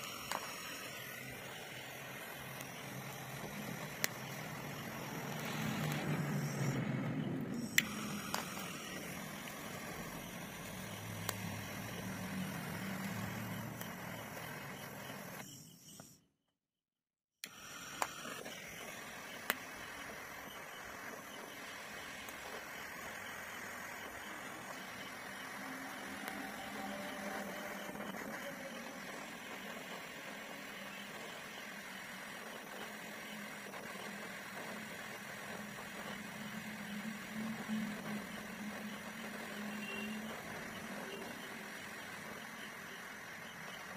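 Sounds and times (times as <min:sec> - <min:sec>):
blow torch flame hissing: 0:00.0 - 0:07.2
sharp clicks: 0:00.0 - 0:15.4
gas torch hissing: 0:00.0 - 0:15.5, 0:17.4 - 0:43.9.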